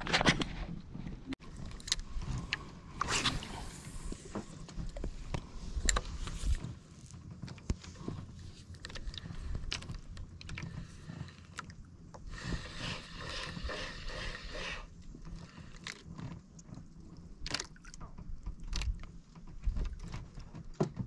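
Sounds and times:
handling noise on microphone: 0.0 - 11.4.

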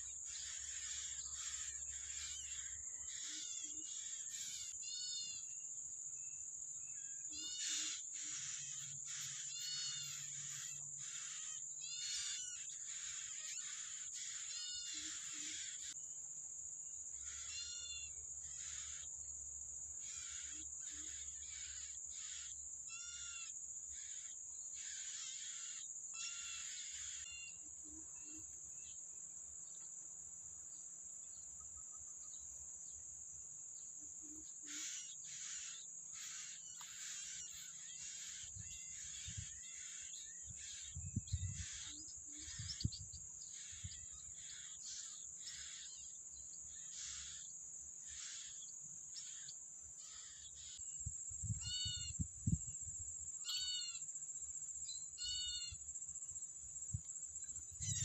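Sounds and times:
insect drone: 0.0 - 58.0
short high bird calls: 6.9 - 16.0, 51.4 - 52.2, 53.4 - 54.0, 55.2 - 55.8, 57.8 - 58.0.

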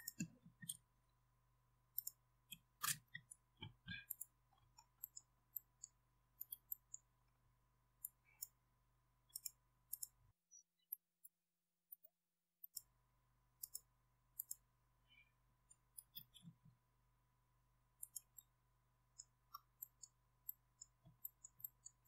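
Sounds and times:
mouse and keyboard clicks: 0.0 - 0.8, 1.9 - 7.0, 9.3 - 10.2, 13.6 - 14.6, 15.9 - 16.6.

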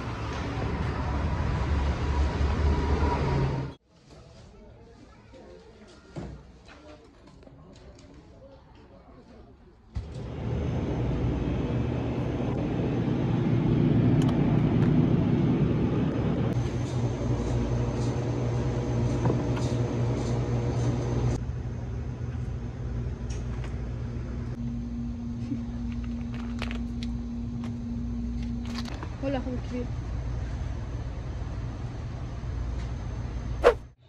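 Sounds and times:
freezers humming: 10.0 - 23.1.

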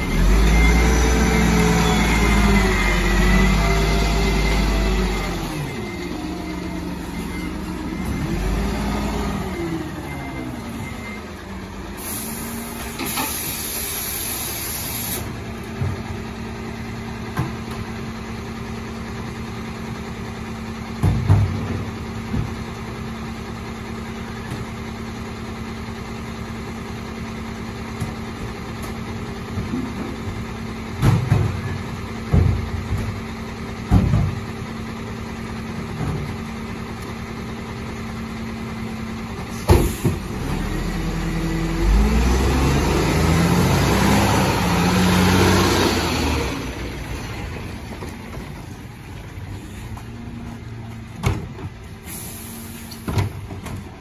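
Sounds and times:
air hiss: 12.0 - 15.2, 52.0 - 53.1
diesel truck engine idling: 21.7 - 54.0
heavy clunks: 28.8 - 34.6, 47.8 - 52.0.

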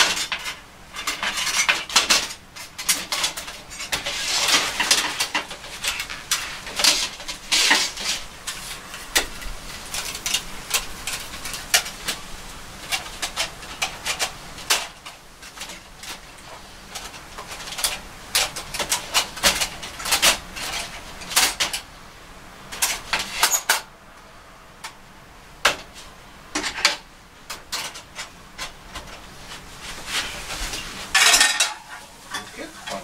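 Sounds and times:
metal panels clinking and clattering: 0.0 - 21.9, 22.7 - 23.9, 25.6 - 33.0
metal rattle: 30.8 - 33.0.

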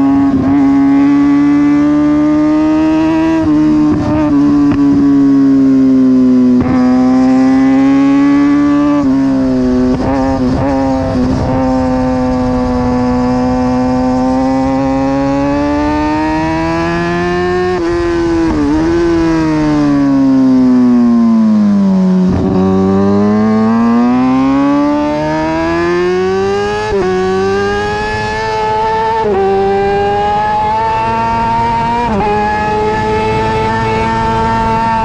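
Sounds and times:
motorcycle engine revving high: 0.0 - 35.0.

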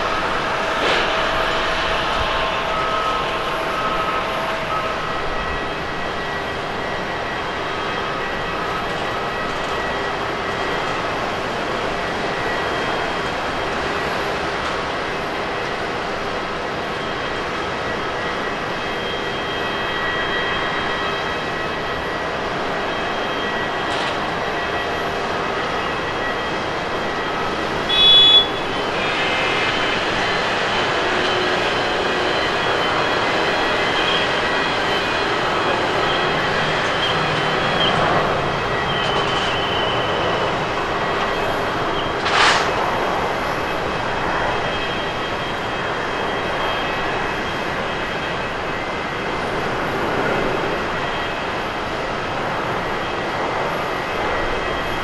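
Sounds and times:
jet engines roaring: 0.0 - 55.0
brief sharp sounds: 42.2 - 42.8.

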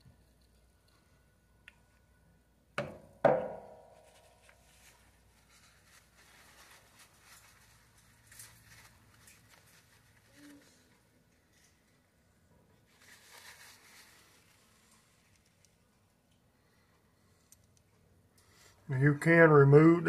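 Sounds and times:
paper towel rustling: 3.8 - 11.9, 12.8 - 15.5
light clicks of parts handled: 15.2 - 16.5, 17.3 - 18.5.

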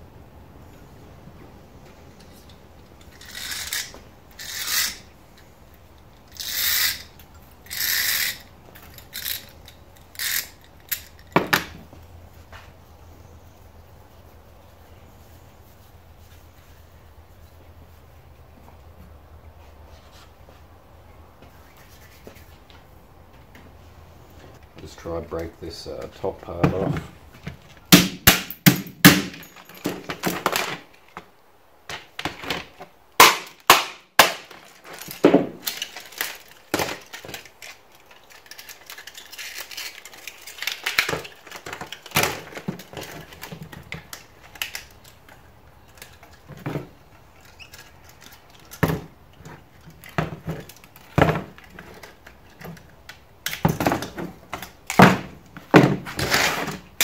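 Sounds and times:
plastic cracking: 33.2 - 46.5.

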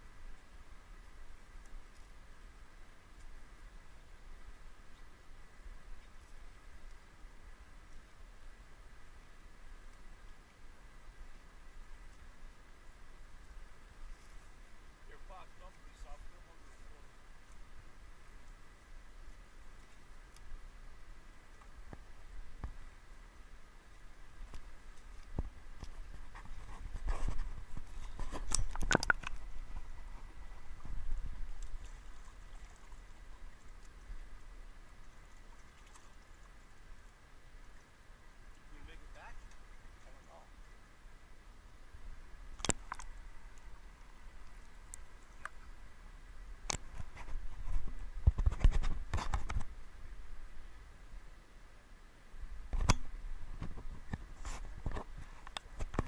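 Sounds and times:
sharp clicks and knocks: 28.3 - 29.4.

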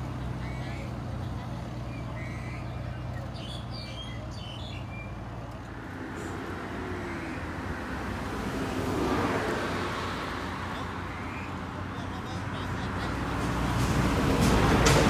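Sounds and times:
engine idling: 0.0 - 6.4
bird chirps: 1.8 - 5.2.

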